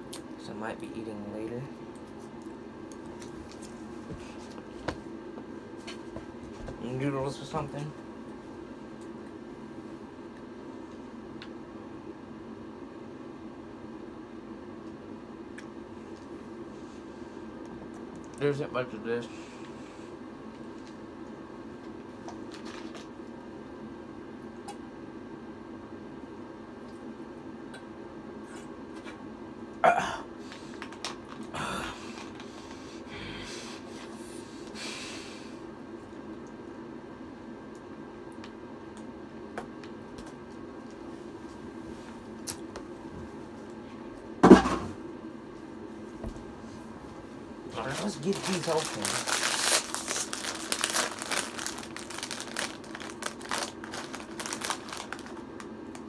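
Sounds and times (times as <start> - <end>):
low room hum: 0.0 - 56.0
plastic bottle rustling: 47.8 - 55.4
chip bag crinkling: 47.8 - 56.0.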